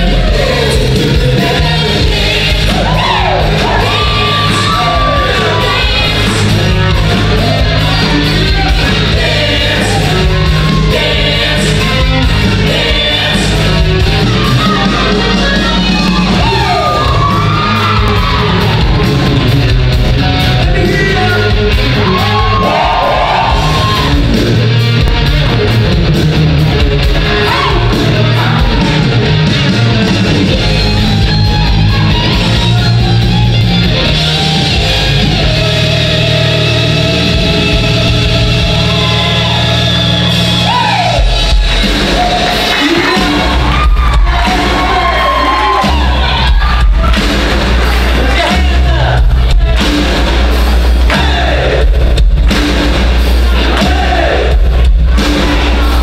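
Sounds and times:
choir singing: 0.0s - 17.4s, 51.0s - 52.0s, 53.4s - 56.0s
shouted vocal lines: 0.0s - 19.5s, 20.7s - 24.4s, 27.2s - 29.4s, 34.4s - 49.2s, 51.0s - 52.0s, 53.5s - 54.6s
amplified rock backing music: 0.0s - 56.0s.

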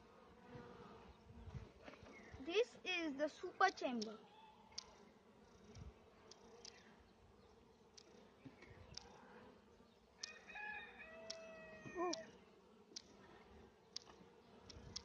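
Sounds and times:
faint clicks of wooden boxes: 5.7s - 6.9s, 7.9s - 9.2s, 13.9s - 15.0s
rooster crowing: 10.2s - 12.1s.

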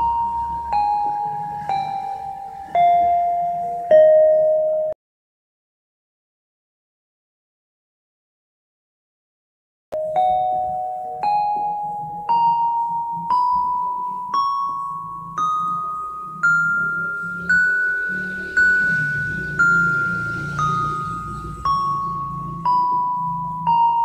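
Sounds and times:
electronic keyboard playing a scale: 0.0s - 5.0s, 10.0s - 24.0s.

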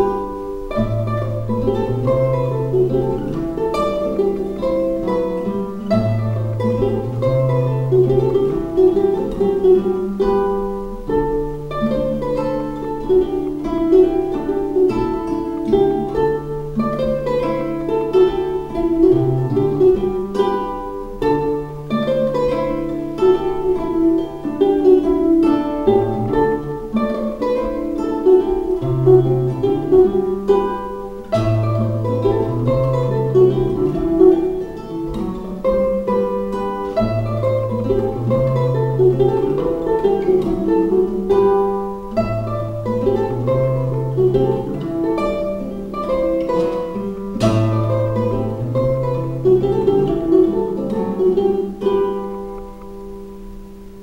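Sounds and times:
classical guitar playing: 0.0s - 54.0s
ukulele playing: 0.0s - 54.0s.

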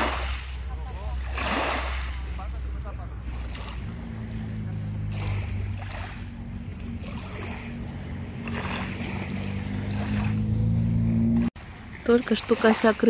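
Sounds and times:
waves washing on pebbly shore: 0.0s - 10.4s
engine humming: 0.0s - 13.0s.

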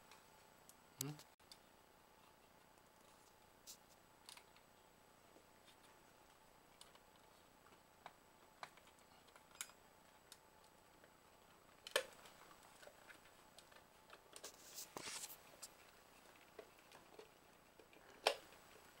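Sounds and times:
brief scraping rustle: 14.4s - 15.4s.

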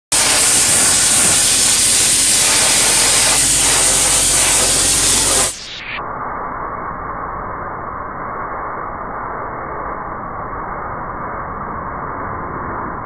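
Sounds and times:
grit blasting hiss on metal: 0.1s - 6.0s.

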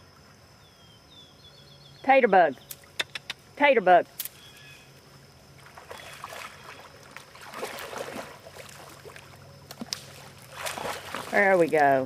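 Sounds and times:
water sloshing and splashing: 5.5s - 12.0s.

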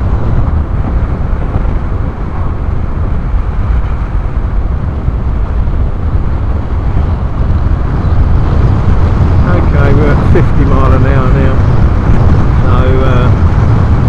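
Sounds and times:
motorcycle engine: 0.0s - 14.0s
road noise: 0.0s - 14.0s
wind buffeting microphone: 0.0s - 14.0s.

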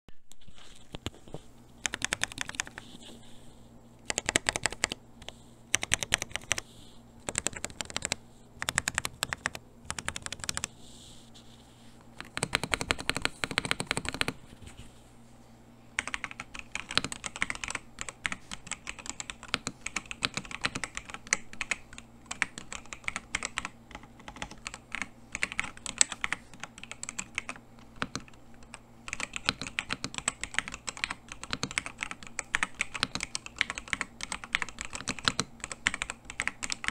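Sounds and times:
mechanical keyboard typing: 1.8s - 2.8s, 4.0s - 5.0s, 5.7s - 6.6s, 7.2s - 10.7s, 12.2s - 14.4s, 16.0s - 36.9s.

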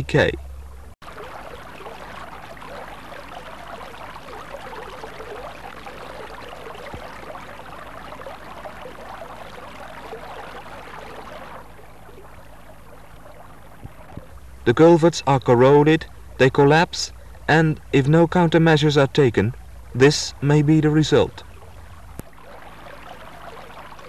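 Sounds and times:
low electrical hum: 0.0s - 24.0s
water running and trickling: 1.0s - 14.7s, 21.1s - 24.0s.

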